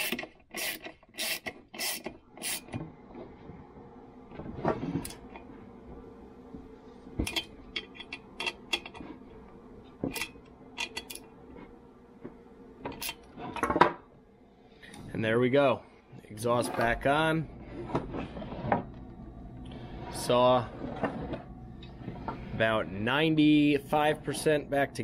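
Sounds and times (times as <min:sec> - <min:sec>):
socket wrench turning nuts: 0:00.0 - 0:02.7.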